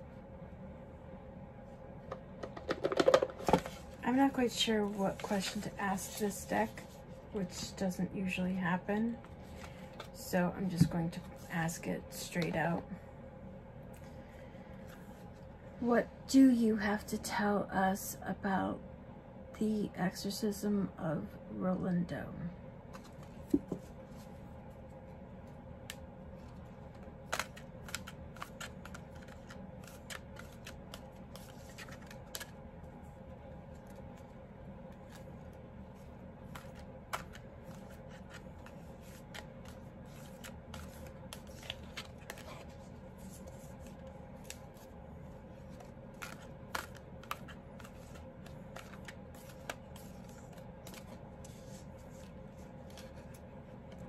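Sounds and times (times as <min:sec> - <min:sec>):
faint steady hum: 0:00.0 - 0:54.0
cards clicking and snapping: 0:27.3 - 0:32.5.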